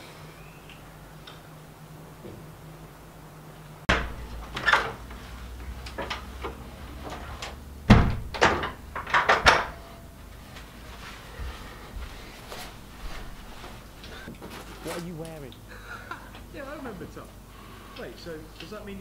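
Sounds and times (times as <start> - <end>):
knocks clunks and clatters of handling: 3.9 - 9.9.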